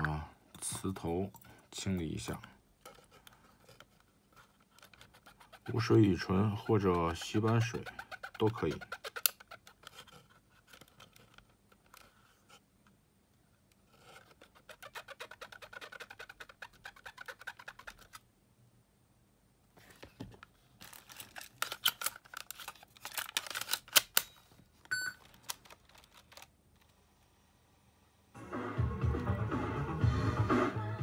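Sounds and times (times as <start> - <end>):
swab scratchy rubbing: 4.4 - 10.4, 13.9 - 18.2.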